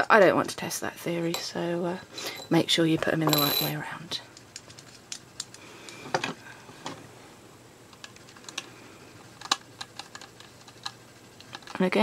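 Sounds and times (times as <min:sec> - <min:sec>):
small plastic parts clicking: 0:09.3 - 0:11.8.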